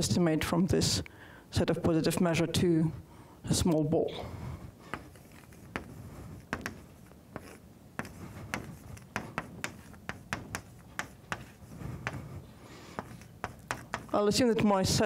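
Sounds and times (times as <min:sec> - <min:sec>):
chalk scratching on blackboard: 0:04.9 - 0:14.2
chalk tapping on blackboard: 0:04.9 - 0:14.2.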